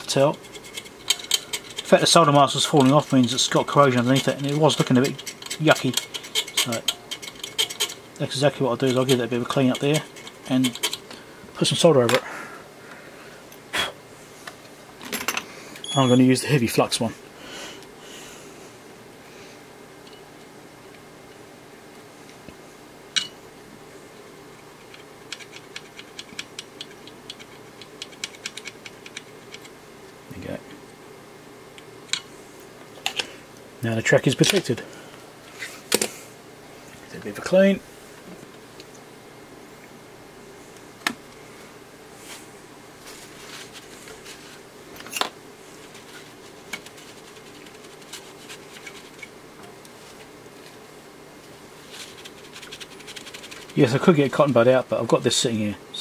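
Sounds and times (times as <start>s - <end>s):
low steady hum: 0.0s - 56.0s
small scratching clicks: 0.1s - 11.2s, 24.8s - 29.8s, 45.8s - 50.7s, 51.8s - 54.0s.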